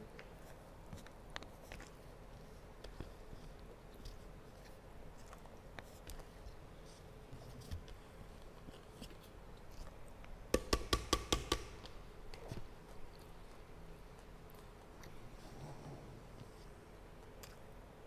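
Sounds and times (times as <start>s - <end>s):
sharp knocks on wood: 10.6s - 11.8s.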